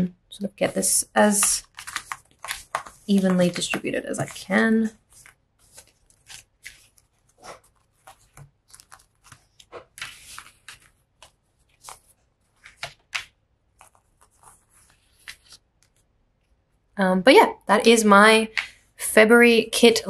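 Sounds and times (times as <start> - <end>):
paper sheets rustling and swishing: 1.3 - 16.0.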